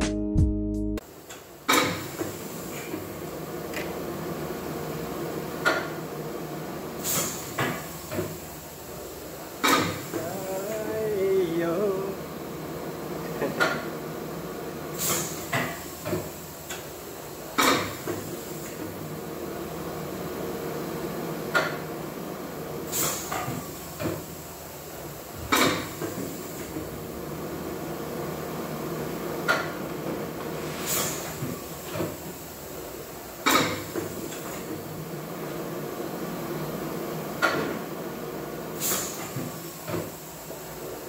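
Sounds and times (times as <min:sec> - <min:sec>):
machine hum: 0:10.0 - 0:15.0.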